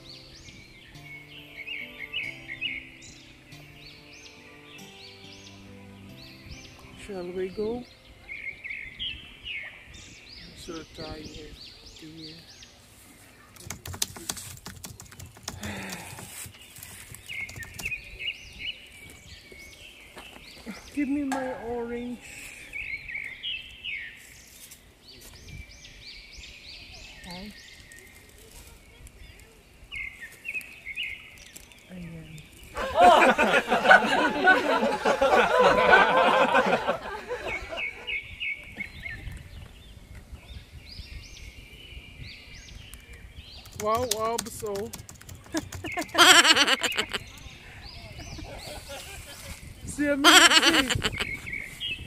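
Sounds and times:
small birds chirping: 0.0 - 52.0
footsteps on paved path: 15.2 - 21.2.

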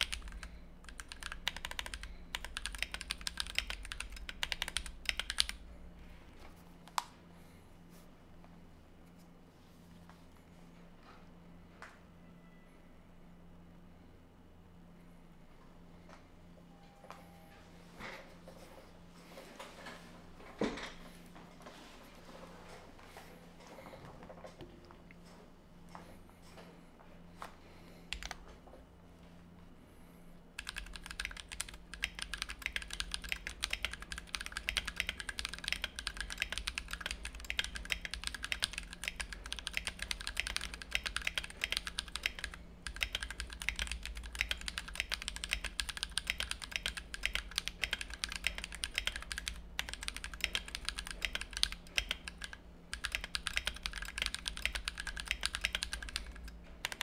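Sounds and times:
mechanical keyboard key clacks: 30.6 - 57.0.

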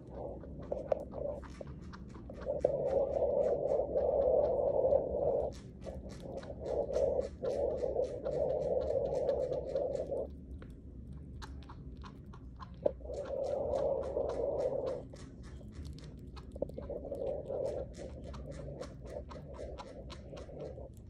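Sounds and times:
chinchilla chewing: 0.0 - 21.0.

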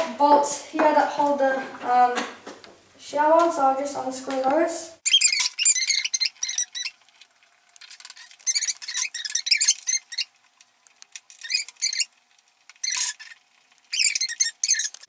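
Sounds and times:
bolts squeaking while unscrewed: 5.0 - 7.0, 7.8 - 10.3, 11.1 - 12.1, 12.7 - 15.0.

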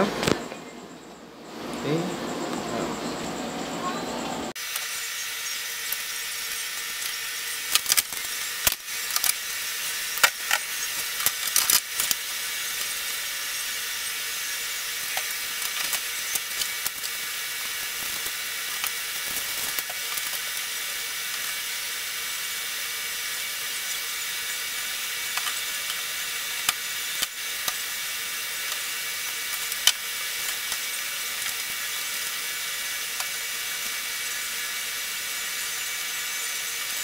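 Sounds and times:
faint hum: 0.0 - 11.6.

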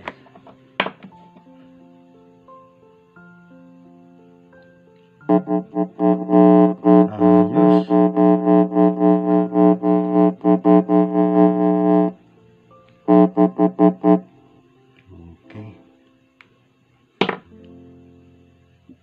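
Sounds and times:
speakers stuttering buzz: 5.3 - 12.2, 13.1 - 14.3.

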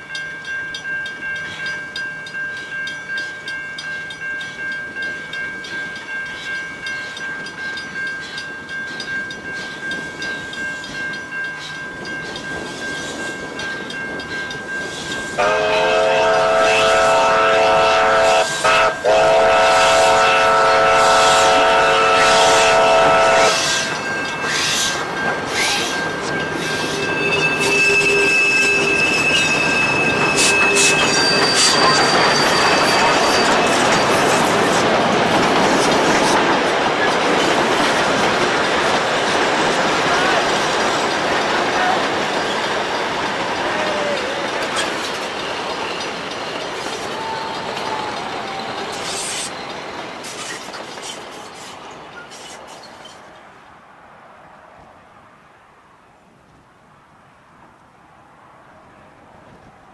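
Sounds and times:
steam train rhythmic beat: 0.1 - 51.8
steam whistle blast: 15.4 - 24.1, 27.5 - 31.8.

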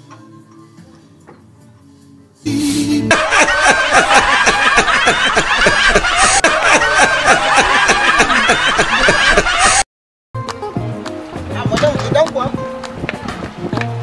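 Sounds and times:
loud rapid laughter: 2.9 - 9.8.

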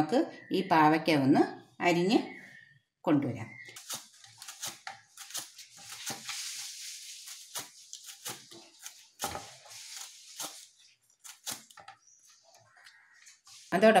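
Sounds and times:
knife slicing through gourd: 3.8 - 11.8.

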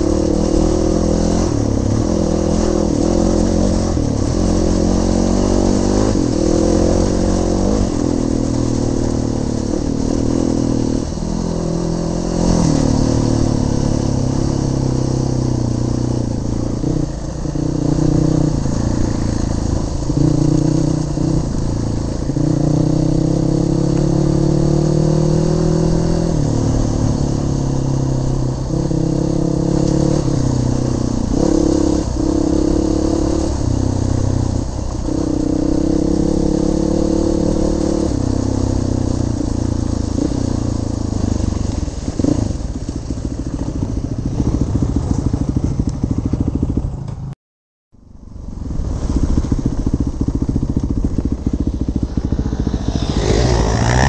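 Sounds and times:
motorcycle engine revving: 0.0 - 47.4, 48.6 - 54.0
wind noise on microphone: 48.1 - 54.0.

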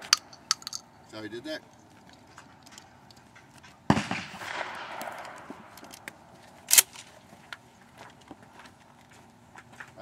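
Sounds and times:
shotgun shot with rolling echo: 3.8 - 7.1.

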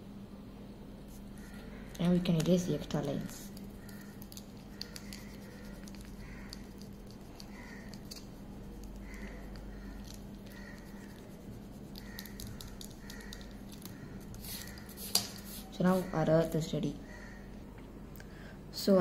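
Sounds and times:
steady low hum: 0.0 - 19.0
pen scratching on paper: 3.4 - 16.2.

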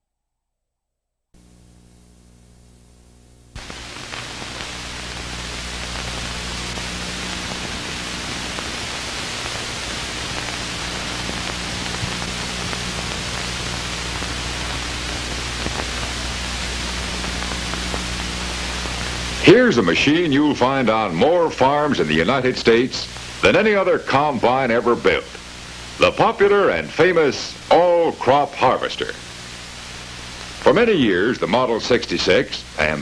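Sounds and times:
electrical hum: 1.4 - 33.0
film soundtrack hiss: 1.4 - 33.0
small pops: 3.6 - 19.4.

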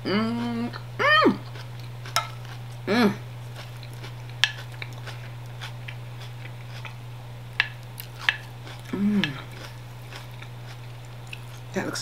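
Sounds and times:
person humming: 0.0 - 1.5, 2.8 - 3.3, 8.9 - 9.5
steady low hum: 0.0 - 12.0
chewing: 0.3 - 11.7.

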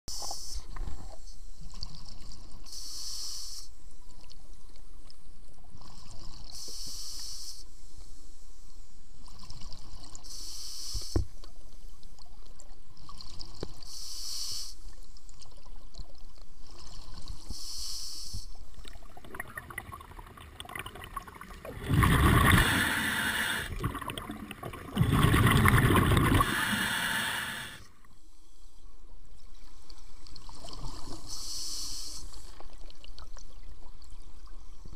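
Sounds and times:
rush of exhaled bubbles: 18.9 - 27.8
diver breathing through regulator: 21.8 - 23.9, 25.0 - 27.9.

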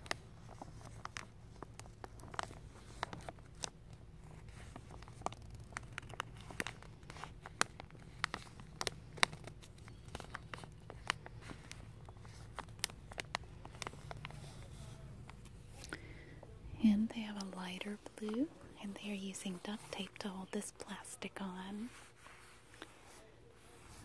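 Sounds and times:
plastic sheeting crinkling: 0.0 - 16.2
low steady hum: 0.0 - 24.0.

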